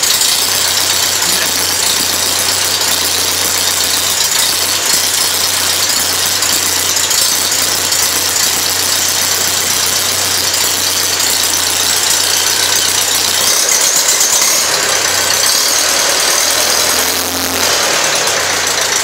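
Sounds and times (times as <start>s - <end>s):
light engine rattle: 0.0s - 19.0s
tractor engine idling: 0.0s - 19.0s.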